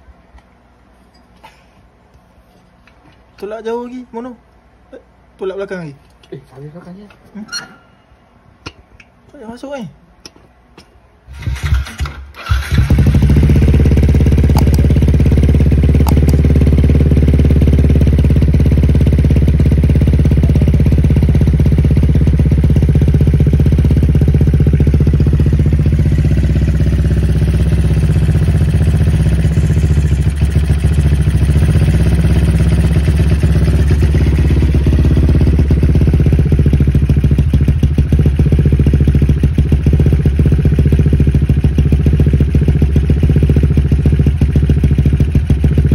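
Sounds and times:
motorcycle engine starting and idling: 0:11.3 - 0:45.9.

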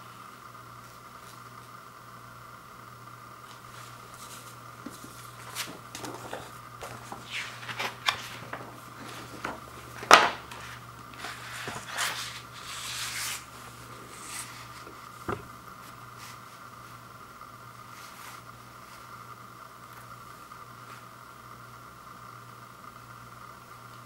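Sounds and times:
paper and plastic rustling: 0:03.6 - 0:13.4.

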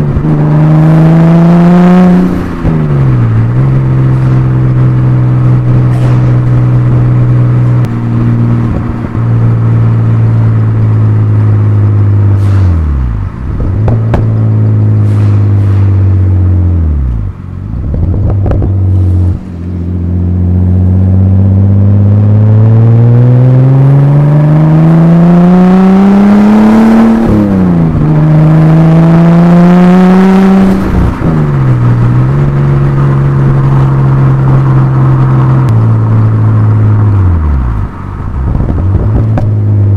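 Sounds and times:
car exhaust: 0:00.0 - 0:39.9.

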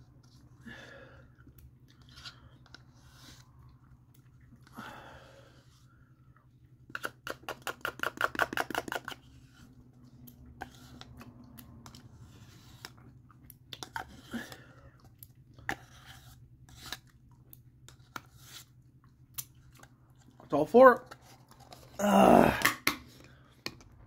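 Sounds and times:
spoon scraping plastic cup: 0:10.4 - 0:13.1, 0:15.6 - 0:17.1.

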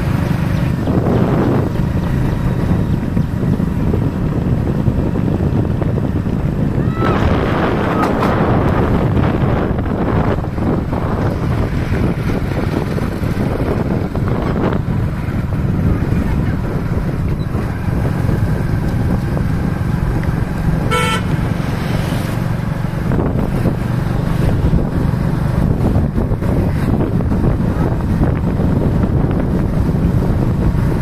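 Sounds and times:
moving vehicle rumble: 0:00.0 - 0:31.0
wind on microphone: 0:00.0 - 0:31.0
vehicle horn toot: 0:20.8 - 0:21.5.

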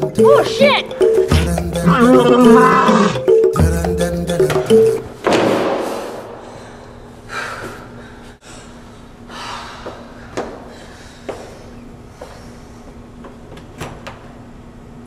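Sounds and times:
woman breathing heavily: 0:05.8 - 0:13.1.

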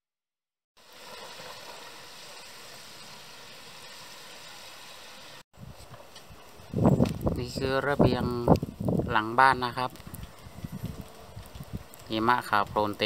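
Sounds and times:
wind rushing in snowstorm: 0:05.6 - 0:13.0.

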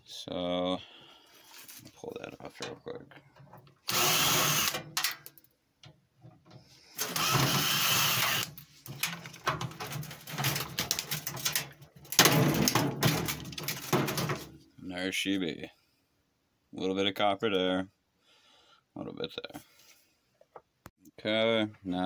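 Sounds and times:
parts clicking and rattling: 0:02.5 - 0:14.7
power drill running: 0:03.8 - 0:04.9, 0:07.0 - 0:08.6.

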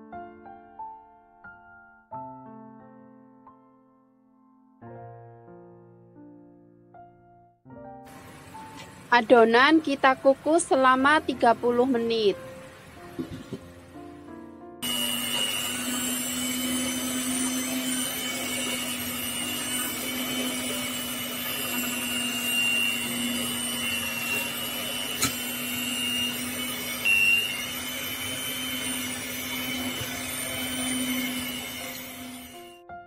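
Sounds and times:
electric hand mixer running: 0:08.1 - 0:13.8, 0:14.8 - 0:32.8.

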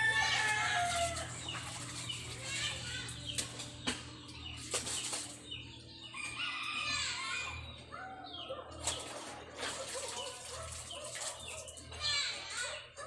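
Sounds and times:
laundry being wrung: 0:00.0 - 0:03.2, 0:08.8 - 0:11.9
water splashing into basin: 0:00.0 - 0:03.8, 0:04.6 - 0:05.5, 0:08.8 - 0:12.0
chickens clucking: 0:00.0 - 0:13.0.

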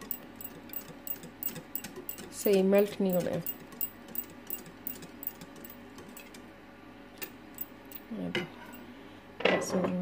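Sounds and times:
wire whisk clicking against bowl: 0:00.0 - 0:06.3.

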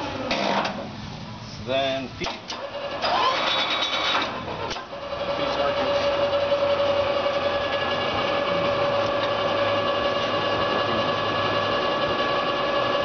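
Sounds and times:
lathe gearing whine: 0:02.6 - 0:13.0
low hum: 0:05.0 - 0:13.0.

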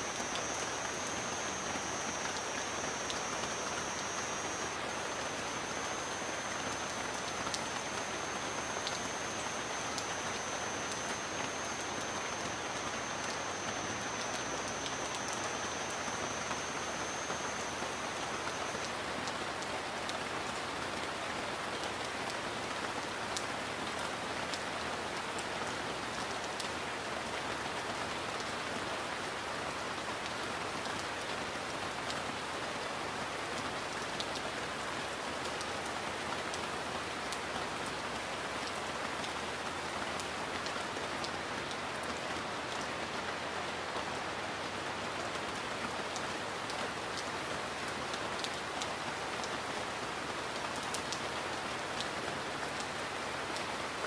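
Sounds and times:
steady rain hiss: 0:00.0 - 0:54.0
raindrops ticking: 0:00.1 - 0:19.4.

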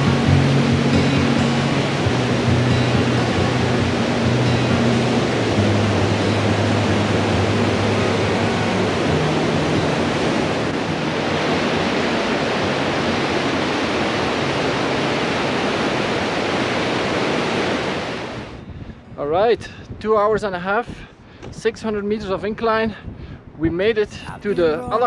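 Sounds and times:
stream rushing over rocks: 0:00.0 - 0:18.6, 0:24.3 - 0:25.0.

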